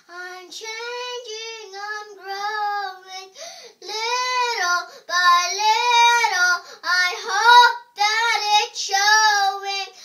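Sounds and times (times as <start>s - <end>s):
girl singing unaccompanied: 0.0s - 10.0s
girl breathing: 3.3s - 3.8s, 4.8s - 5.1s, 6.6s - 6.9s.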